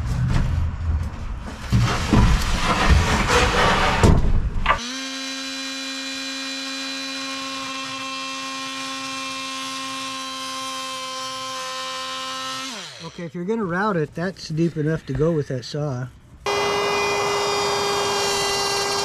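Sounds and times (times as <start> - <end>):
loud rustling and knocks: 0.0 - 4.7
rotary tool whining: 4.7 - 13.2, 16.4 - 19.0.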